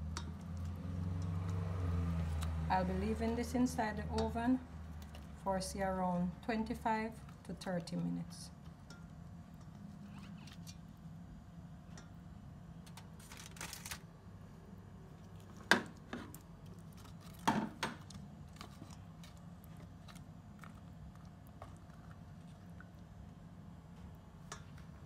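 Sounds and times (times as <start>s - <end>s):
tongs clacking against metal pot: 4.0s - 4.4s.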